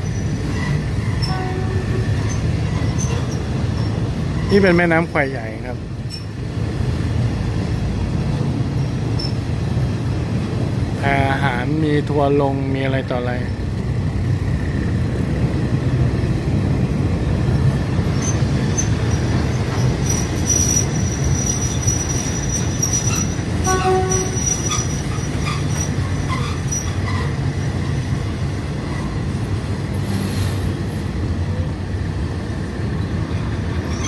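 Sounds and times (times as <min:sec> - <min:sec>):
high-pitched wheel squeal: 0:00.0 - 0:04.7, 0:06.1 - 0:06.4, 0:09.2 - 0:09.4, 0:18.1 - 0:27.4
train wheels rumbling on rails: 0:00.0 - 0:34.0.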